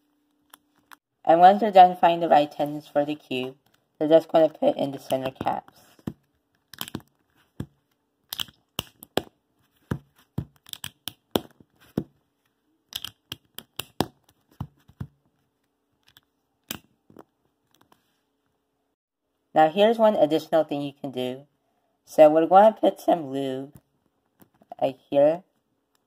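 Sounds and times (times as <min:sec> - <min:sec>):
plastic caps clicking and snapping: 0:06.6 - 0:07.1, 0:08.3 - 0:09.3, 0:10.4 - 0:11.6, 0:12.9 - 0:14.4.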